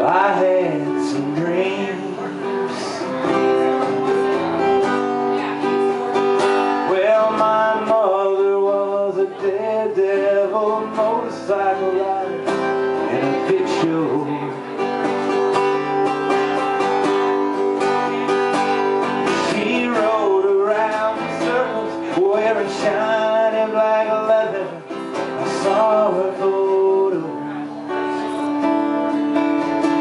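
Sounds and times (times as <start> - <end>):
man singing into microphone: 0.0 - 3.6, 6.7 - 15.0, 18.8 - 28.6
acoustic guitar strumming: 0.0 - 30.0.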